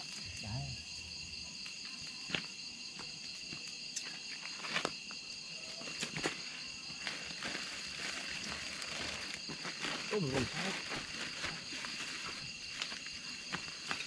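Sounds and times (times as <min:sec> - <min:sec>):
crickets and insects trilling: 0:00.0 - 0:14.0.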